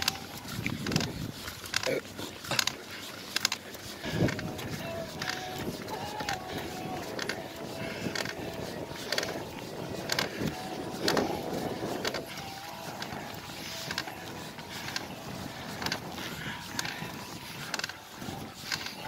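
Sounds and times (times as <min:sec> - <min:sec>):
bike rattling and creaking: 0:00.0 - 0:19.0.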